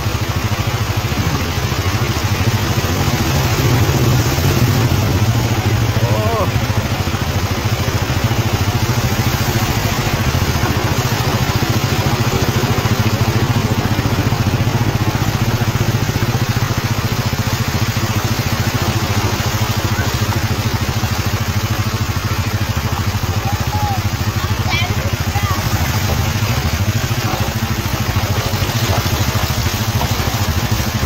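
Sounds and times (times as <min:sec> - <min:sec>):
motorcycle engine running: 0:00.0 - 0:31.0
water rushing hiss: 0:00.0 - 0:31.0.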